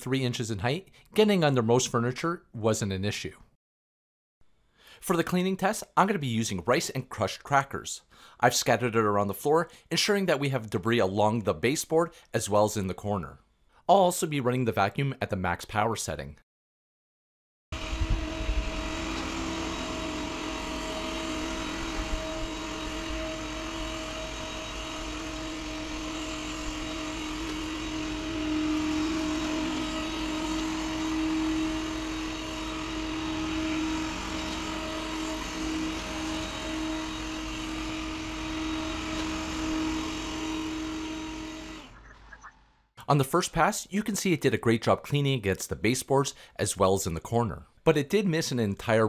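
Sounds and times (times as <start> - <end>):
robot vacuum motor drone: 17.8 - 42.0.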